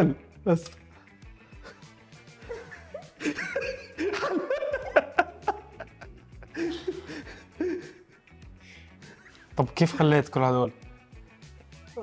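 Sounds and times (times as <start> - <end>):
quiet background music: 0.0 - 12.0
people chuckling and giggling: 1.6 - 10.2.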